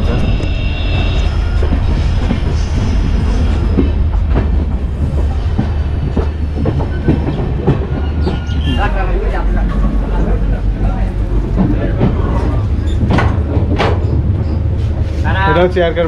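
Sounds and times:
train rumbling: 0.0 - 16.0.

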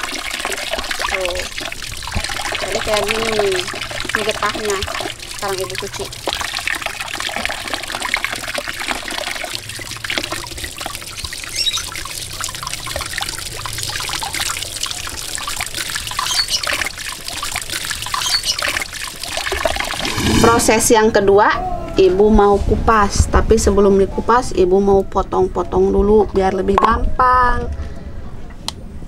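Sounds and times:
water pouring and splashing: 0.0 - 21.0.

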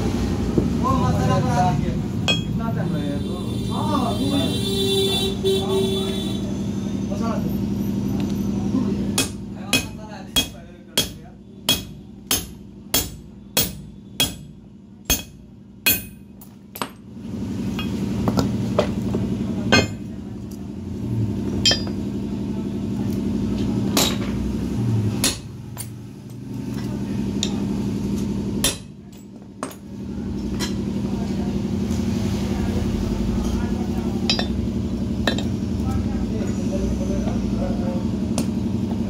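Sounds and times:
steady machine hum: 0.0 - 39.0
hammer striking metal: 2.2 - 2.6, 9.1 - 17.0, 19.7 - 20.1, 21.6 - 22.0, 23.9 - 24.4, 25.2 - 25.9, 28.6 - 29.8, 34.2 - 35.6.

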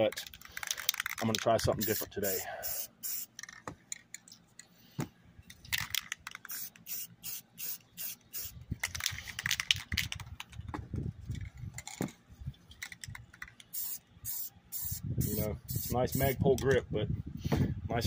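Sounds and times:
spray paint can hissing: 1.8 - 3.4, 6.3 - 8.6, 13.7 - 16.3.

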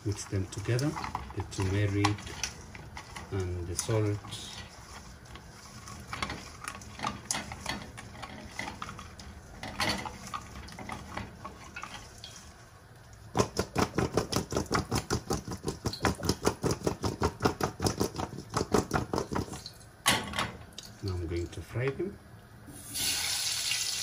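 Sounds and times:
potatoes rattling in steel colander: 0.0 - 12.5
hands mixing potatoes: 0.0 - 19.7.

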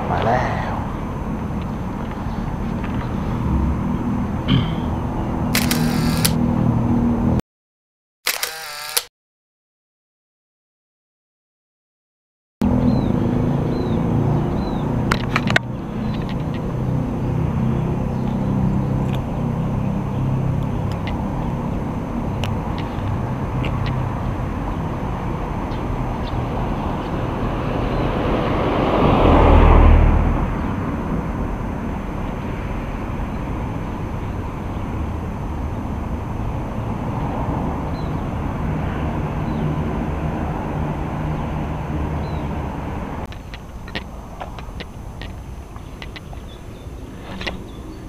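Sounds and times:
road and wind noise: 0.0 - 7.4, 8.3 - 9.1, 12.6 - 48.0
vehicle passing close: 0.0 - 7.4, 12.6 - 43.3
small clicks: 5.6 - 6.4, 8.3 - 9.1.

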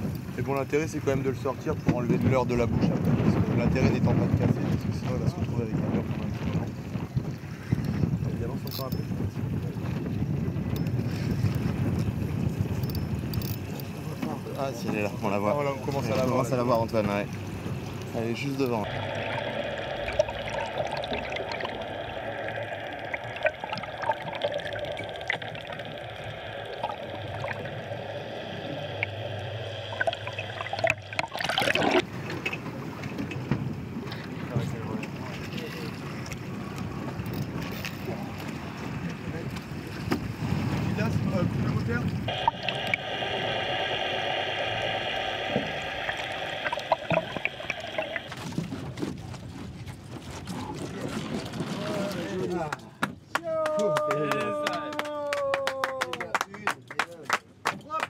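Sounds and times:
water splashing and trickling: 10.8 - 35.8, 42.2 - 52.7
steady hum of fixed tones: 15.6 - 33.1, 42.3 - 48.8
loud rush of noise: 18.8 - 32.0, 42.3 - 48.7.

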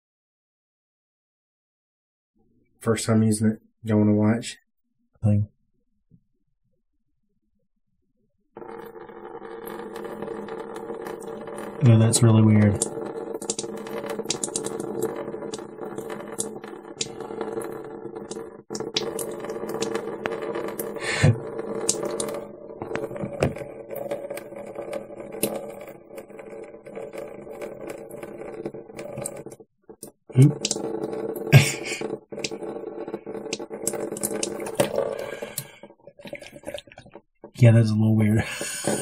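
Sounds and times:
water dripping and splashing: 12.8 - 17.0.

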